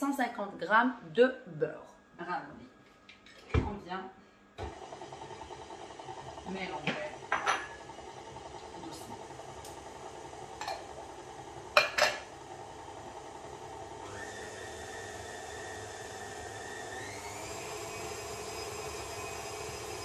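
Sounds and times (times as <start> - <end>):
stand mixer motor whine: 4.6 - 20.0.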